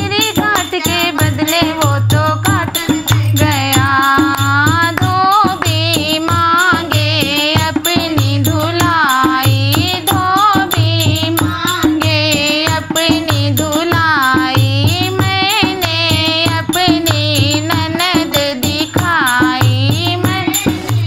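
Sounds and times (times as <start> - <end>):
women singing folk song: 0.0 - 21.0
hand clapping: 0.4 - 7.0.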